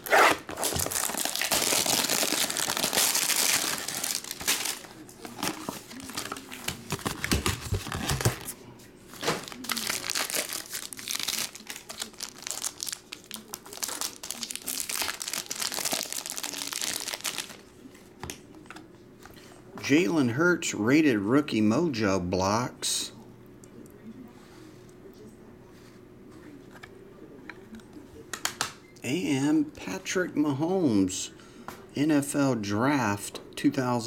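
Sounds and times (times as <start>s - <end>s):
plastic wrapping tearing and crinkling: 0.0s - 8.6s, 9.2s - 17.7s.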